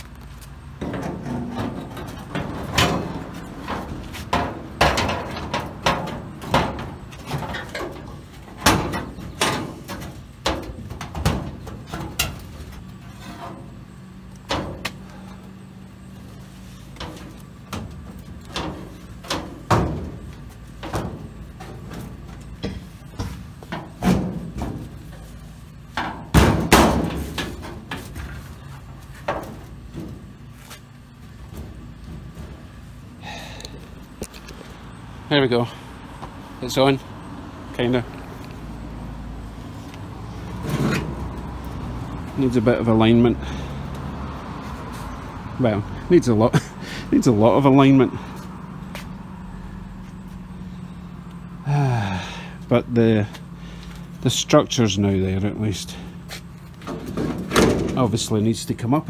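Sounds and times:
low steady hum: 0:00.0 - 0:59.0
metal car door clunks: 0:00.8 - 0:12.5, 0:17.0 - 0:25.0, 0:26.0 - 0:28.3, 0:56.8 - 0:58.1.

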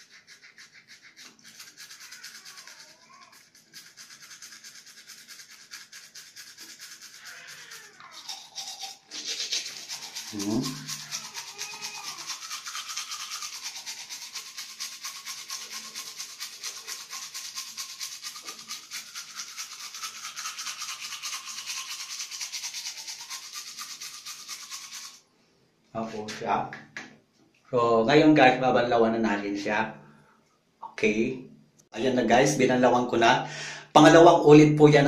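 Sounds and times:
toothbrush scrubbing teeth: 0:00.0 - 0:25.2.

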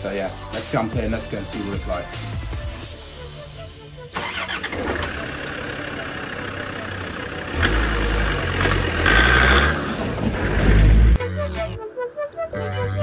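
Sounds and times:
vehicle pulling away: 0:04.1 - 0:11.2
diesel engine idling: 0:04.2 - 0:11.2.

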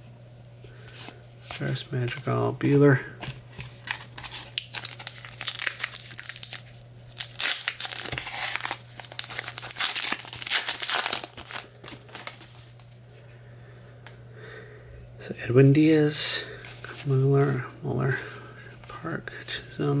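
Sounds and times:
card pack wrapper crinkling: 0:03.6 - 0:13.0.

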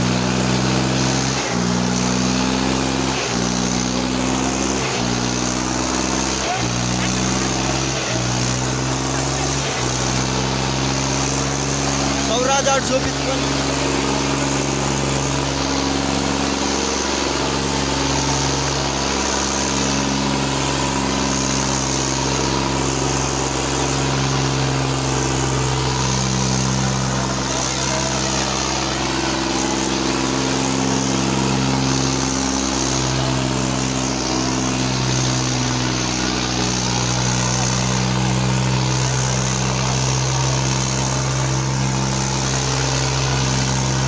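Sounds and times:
crowd voices: 0:00.0 - 0:44.0
tractor diesel engine under load: 0:00.0 - 0:44.0.

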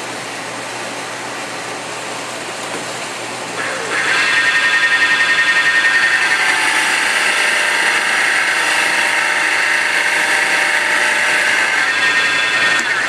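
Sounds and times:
chisel cutting wood on lathe: 0:03.6 - 0:13.0.

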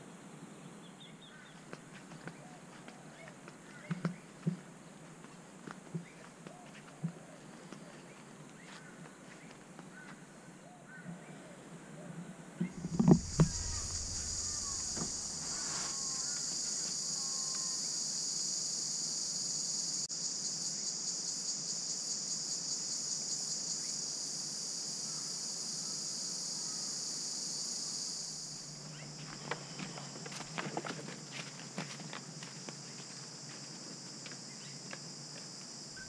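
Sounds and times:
faint bird chirps: 0:12.6 - 0:17.8
brief knock: 0:12.8 - 0:16.0
high-pitched insect drone: 0:12.8 - 0:30.4.

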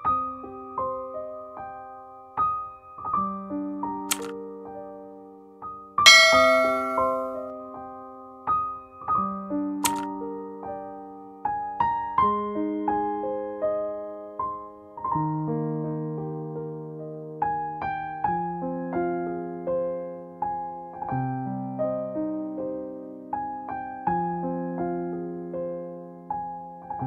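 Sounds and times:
keyboard notes and chords: 0:06.1 - 0:07.4.

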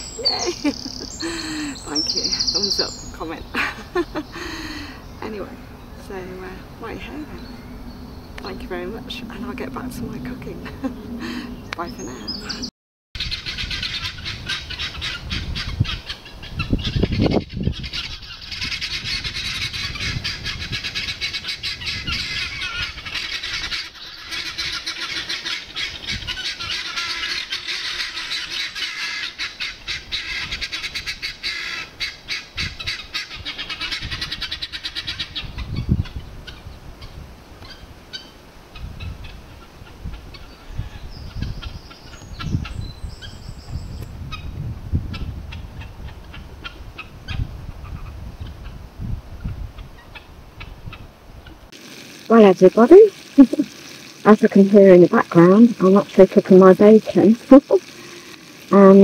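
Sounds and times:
guineafowl flock calling: 0:10.8 - 0:43.3, 0:45.1 - 0:48.8, 0:49.4 - 0:51.6.

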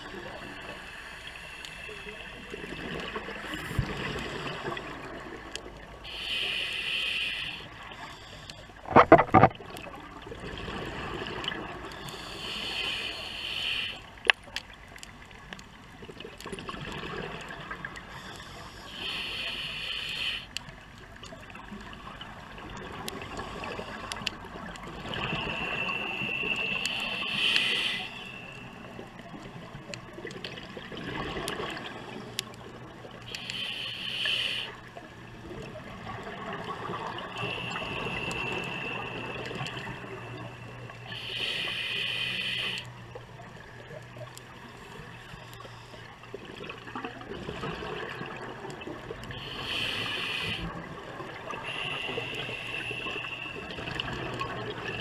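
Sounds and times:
diver breathing through regulator: 0:06.0 - 0:09.5, 0:11.9 - 0:14.1, 0:18.1 - 0:20.6, 0:25.0 - 0:29.0, 0:33.3 - 0:34.9, 0:36.8 - 0:42.9, 0:49.3 - 0:50.8, 0:51.5 - 0:54.0
water gurgling: 0:08.8 - 0:14.0, 0:21.0 - 0:45.1, 0:45.8 - 0:55.0
rush of bubbles: 0:46.4 - 0:49.2.

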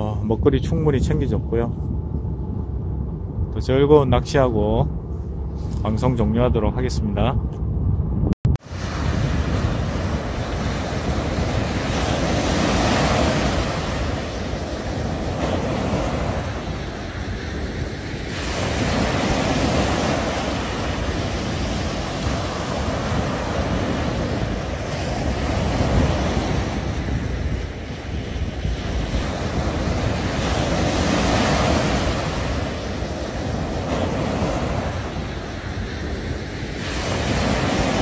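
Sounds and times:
small waves breaking on beach: 0:08.6 - 0:38.0.

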